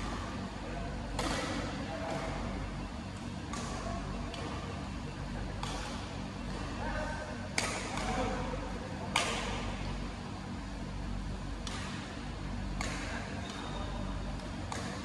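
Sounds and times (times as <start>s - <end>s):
steady low hum: 0.0s - 15.0s
rackets striking shuttlecock: 1.1s - 2.4s, 3.2s - 4.7s, 5.5s - 6.8s, 7.5s - 8.4s, 9.1s - 9.7s, 11.6s - 12.1s, 12.7s - 15.0s.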